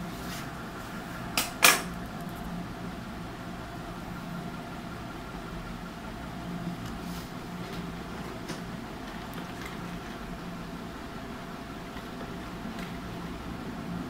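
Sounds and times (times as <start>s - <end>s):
low machine hum: 0.0s - 14.0s.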